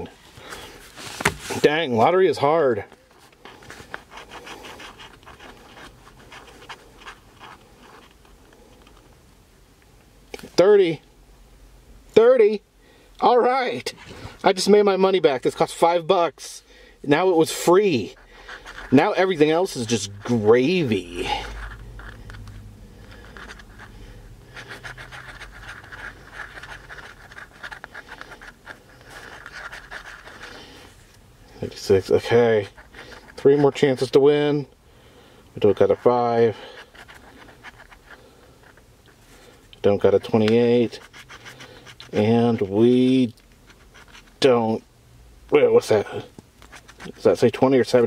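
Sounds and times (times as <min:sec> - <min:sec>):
coin scratching lottery ticket: 0:17.7 - 0:30.7, 0:35.6 - 0:38.8, 0:40.0 - 0:43.0, 0:43.7 - 0:44.4.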